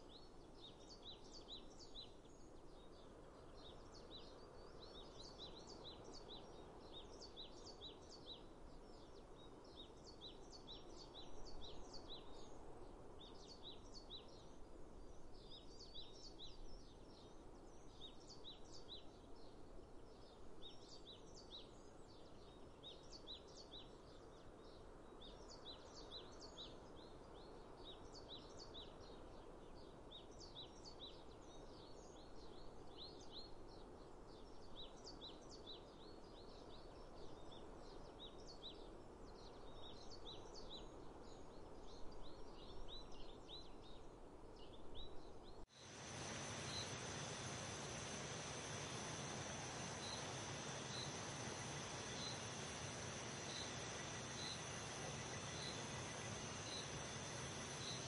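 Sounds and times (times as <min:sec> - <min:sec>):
faint background hiss: 0:00.0 - 0:58.0
small birds chirping: 0:44.6 - 0:58.0.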